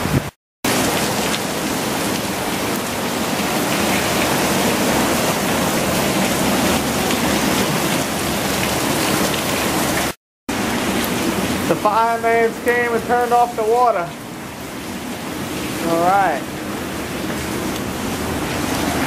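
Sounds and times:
heavy rain on pavement: 0:00.0 - 0:19.0.

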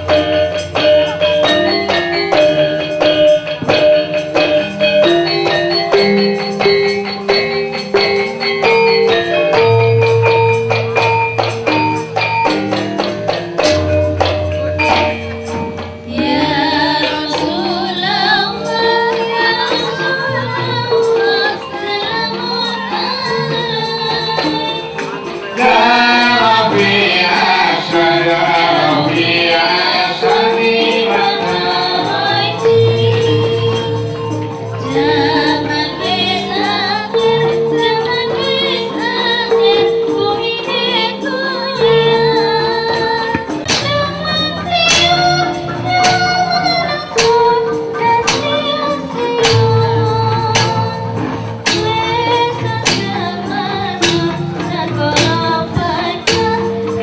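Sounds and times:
metallophones ringing: 0:00.0 - 0:57.0
woman singing: 0:16.0 - 0:57.0
sharp percussion strokes: 0:21.0 - 0:57.0.

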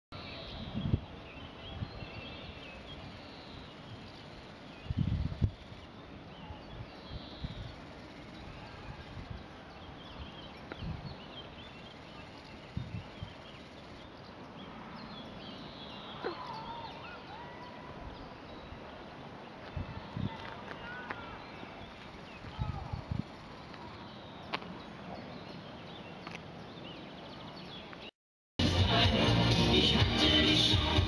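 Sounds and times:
small birds chirping: 0:00.2 - 0:28.1
wind buffeting microphone: 0:04.8 - 0:05.6, 0:08.5 - 0:11.2, 0:12.6 - 0:13.5, 0:22.4 - 0:23.4.

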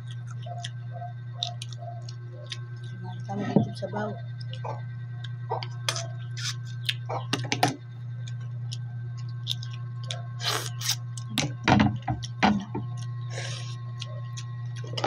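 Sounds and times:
steady low hum: 0:00.0 - 0:15.0
mouth sucking and chewing: 0:05.9 - 0:07.1, 0:08.7 - 0:11.3.

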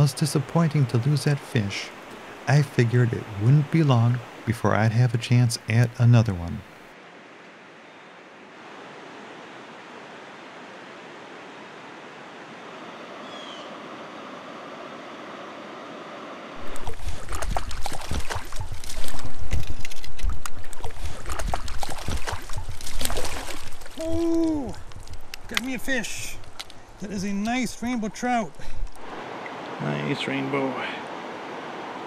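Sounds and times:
creek water flowing over rocks: 0:00.0 - 0:06.9, 0:16.6 - 0:32.0
water rushing and splashing: 0:00.0 - 0:14.7, 0:16.4 - 0:32.0.

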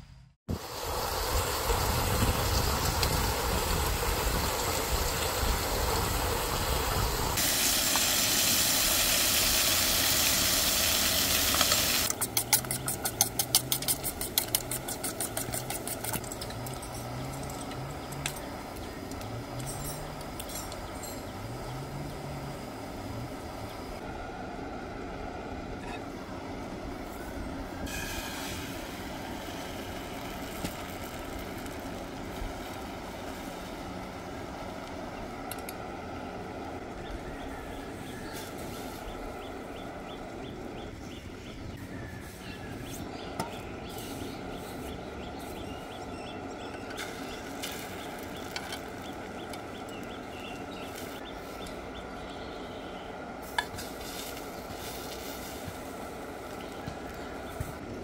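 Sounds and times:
gas stove burner rushing: 0:00.5 - 0:21.4, 0:27.7 - 0:33.7.

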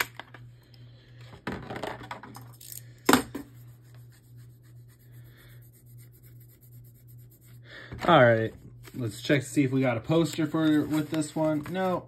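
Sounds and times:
low steady hum: 0:00.0 - 0:12.0
plastic parts rustling: 0:01.2 - 0:03.0, 0:10.1 - 0:12.0.

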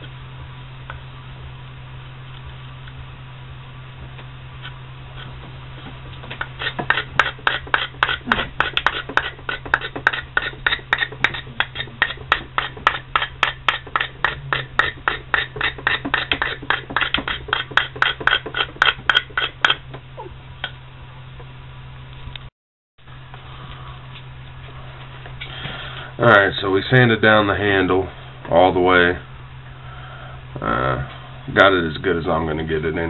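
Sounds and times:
steady low hum: 0:00.0 - 0:33.0
knife scraping wood: 0:06.3 - 0:19.9.

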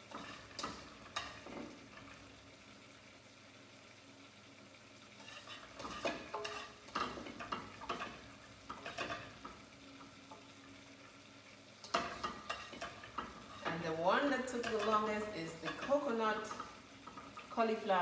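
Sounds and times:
spatula scraping and knocking pan: 0:00.0 - 0:02.2, 0:05.2 - 0:09.7, 0:11.8 - 0:17.5
faint sizzle in a pan: 0:00.0 - 0:18.0.

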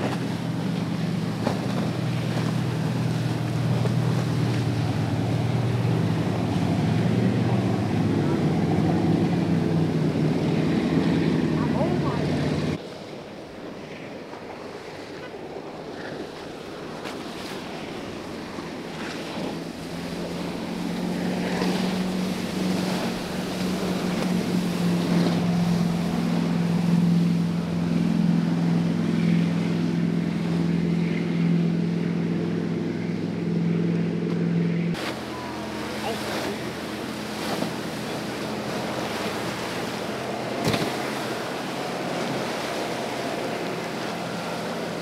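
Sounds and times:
boat engines droning: 0:00.0 - 0:45.0
rush of wake and waves: 0:00.0 - 0:45.0.

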